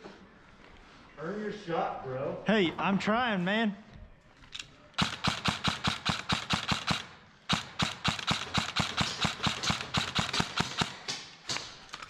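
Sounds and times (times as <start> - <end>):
airsoft rifle firing bursts: 5.0 - 11.8.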